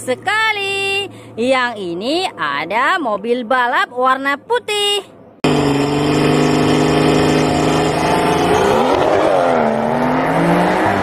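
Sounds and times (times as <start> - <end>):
car engine revving hard: 5.4 - 11.0.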